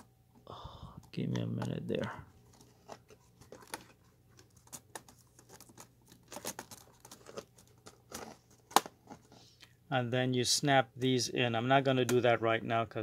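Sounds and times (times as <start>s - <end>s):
plastic clicks and rustles: 1.0s - 9.4s.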